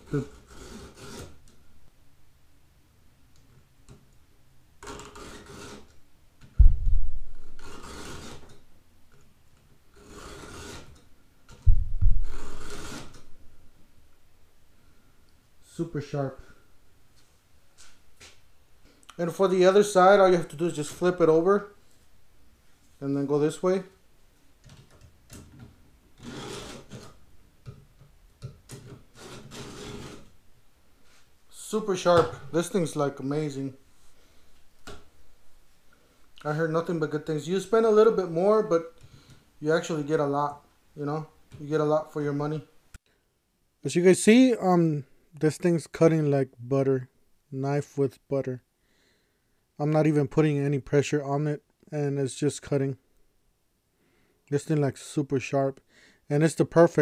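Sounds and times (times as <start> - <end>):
file rasping on chain: 0.2 - 1.4, 4.8 - 5.9, 7.6 - 8.5, 10.0 - 11.0, 12.2 - 13.2, 26.2 - 27.0, 29.1 - 30.3
heavy thump: 6.6 - 7.5, 11.7 - 12.3.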